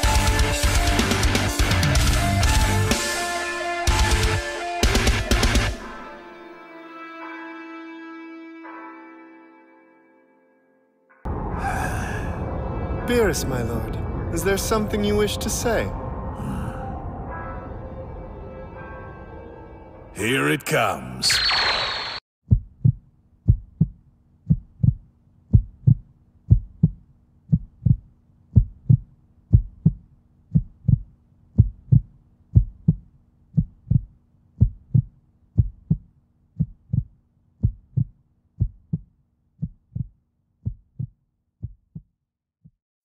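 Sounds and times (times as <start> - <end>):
heartbeat thumps: 22.5 - 42.1.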